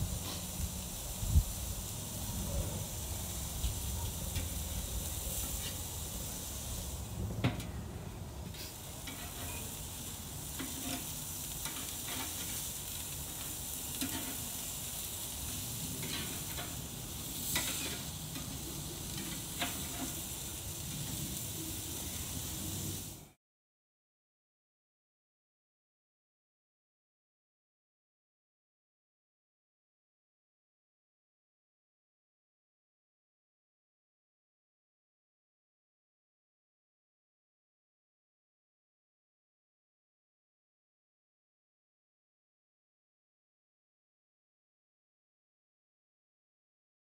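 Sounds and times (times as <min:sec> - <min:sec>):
patties sizzling on a grill: 0:00.0 - 0:23.4
metal spatula scraping grate: 0:00.1 - 0:00.6, 0:02.4 - 0:06.4, 0:08.5 - 0:21.4.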